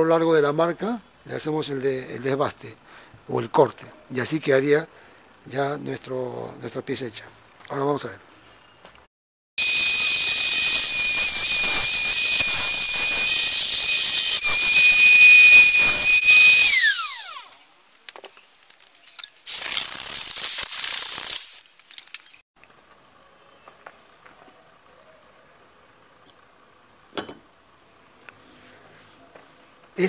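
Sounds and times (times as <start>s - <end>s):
router motor whining: 9.6s - 17.6s
burst of hissing noise: 19.4s - 21.9s.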